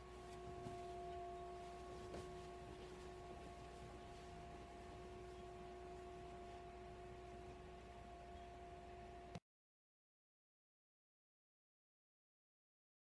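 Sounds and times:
faint ringing drone: 0.0s - 9.4s.

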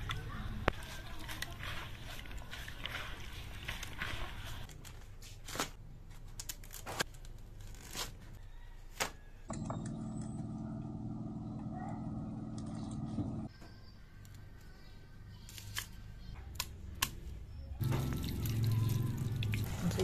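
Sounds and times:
hands squishing grated coconut: 0.0s - 4.7s
steady low hum: 9.5s - 13.5s.

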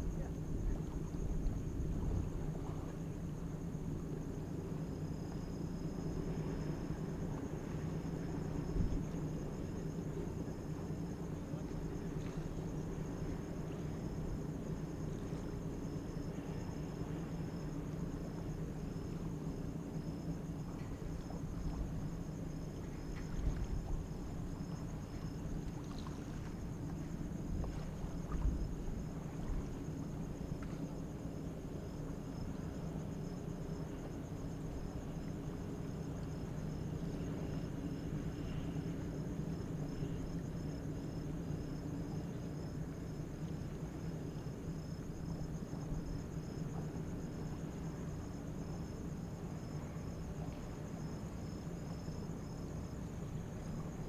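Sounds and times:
insects chirping: 0.0s - 54.0s
low hum of ship machinery: 0.0s - 54.0s
faint low knocks: 20.2s - 31.2s.

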